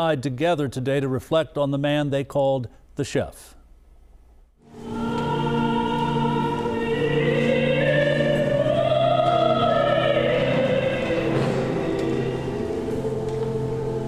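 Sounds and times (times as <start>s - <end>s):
classical singing: 4.6s - 14.0s
sustained chords: 4.6s - 14.0s.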